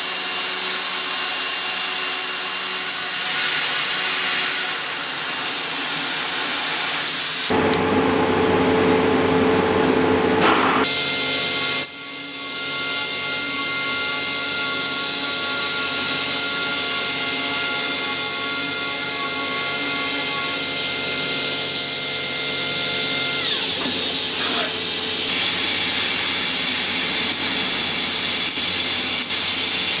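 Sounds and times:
machining spindle whine: 10.9s - 30.0s.

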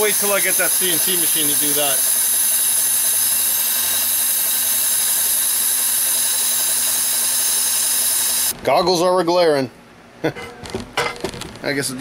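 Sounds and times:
compressed air hissing from nozzle: 0.0s - 8.6s
milling machine low hum: 0.0s - 8.6s.

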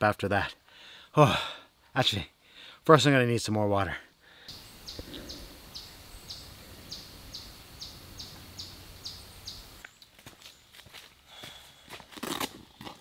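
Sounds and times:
low outdoor background: 0.0s - 13.0s
bird chirping: 4.5s - 10.8s.

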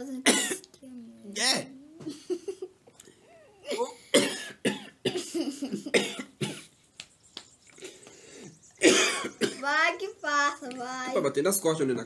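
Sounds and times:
man coughing: 3.6s - 6.7s, 8.8s - 9.6s.

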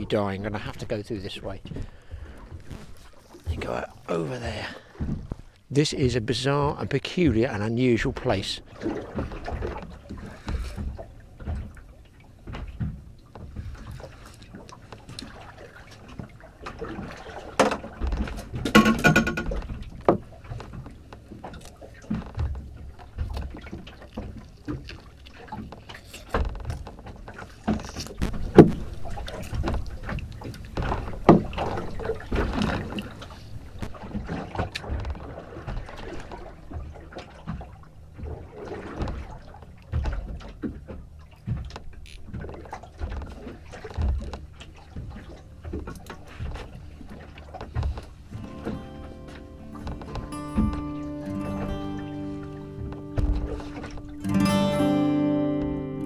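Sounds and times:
low rumble of wind and water: 0.0s - 56.0s
fishing tackle knocking on boat: 17.6s - 21.5s, 47.6s - 54.3s.

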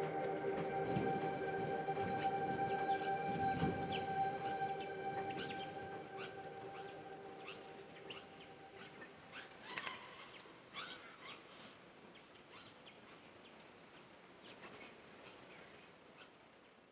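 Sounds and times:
held music notes: 0.0s - 9.4s
thin high tone: 0.0s - 9.5s.

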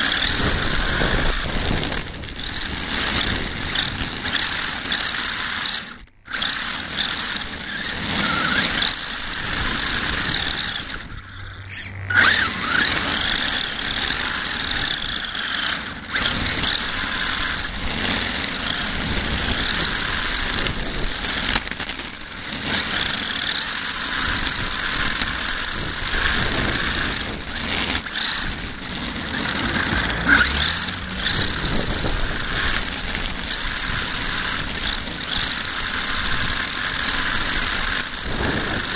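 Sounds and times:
tyre and wind noise: 0.0s - 7.1s, 24.2s - 38.9s
toy car motor whining: 0.0s - 38.9s.

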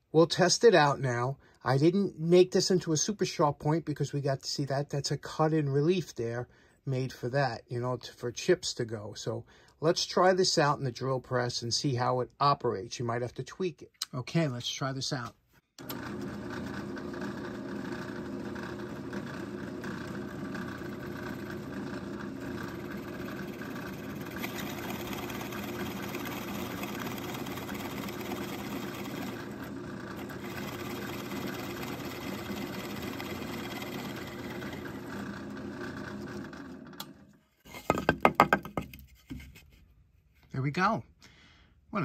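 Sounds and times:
drill bit boring into wood: 15.8s - 37.1s
drill press motor running: 15.8s - 37.3s.

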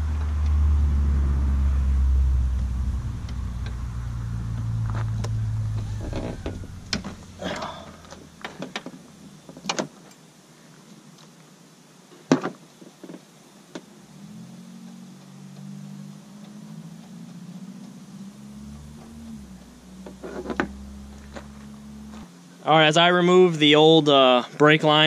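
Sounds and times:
loud low drone: 0.0s - 8.4s, 18.1s - 22.3s.

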